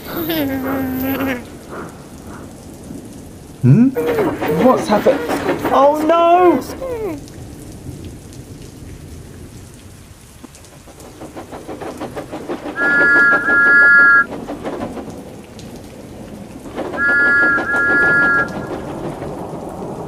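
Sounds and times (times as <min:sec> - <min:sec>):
heavy rain: 0:00.0 - 0:20.0
steam locomotive exhaust beats: 0:00.9 - 0:03.1, 0:03.9 - 0:07.2, 0:10.4 - 0:20.0
steam whistle blast: 0:12.8 - 0:14.3, 0:17.0 - 0:18.8.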